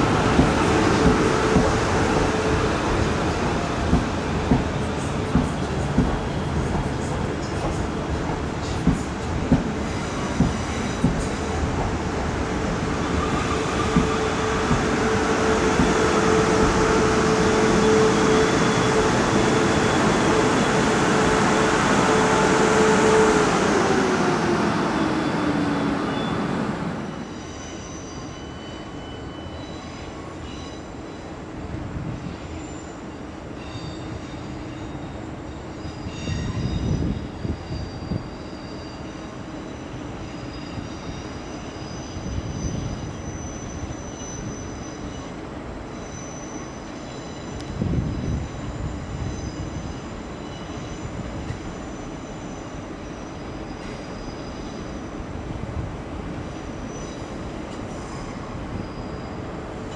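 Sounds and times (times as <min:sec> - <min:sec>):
train rumbling: 0:00.0 - 0:27.8
train whine: 0:00.0 - 0:59.9
faint high squeaks: 0:56.8 - 0:59.5.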